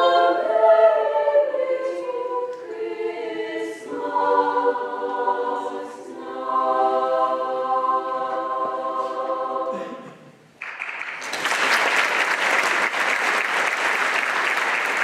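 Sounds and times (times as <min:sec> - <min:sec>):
choir holding a chord: 0:00.0 - 0:10.2
audience applause: 0:10.6 - 0:15.0.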